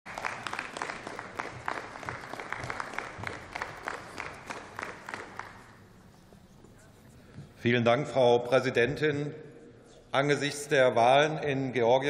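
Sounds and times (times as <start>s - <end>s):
sparse applause: 0.1s - 5.9s.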